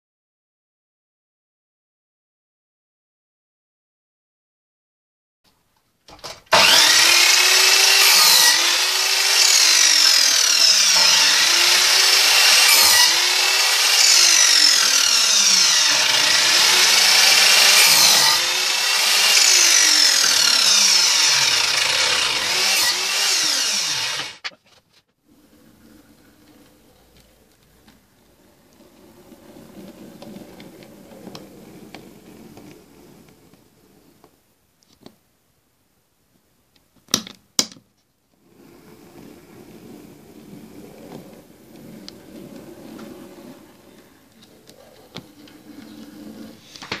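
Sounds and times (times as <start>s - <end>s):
mitre saw cutting wood: 6.5s - 24.6s.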